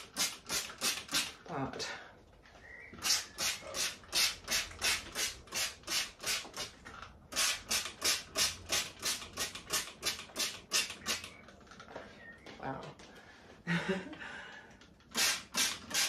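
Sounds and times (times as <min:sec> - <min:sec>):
spray bottle hissing: 0:03.0 - 0:06.7.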